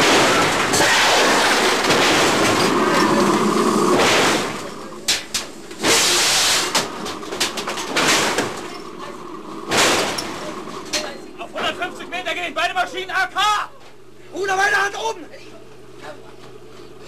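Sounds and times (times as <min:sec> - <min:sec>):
sharp knocks and rattles: 0:00.0 - 0:11.8
loud rushing hissing noise: 0:02.7 - 0:06.9.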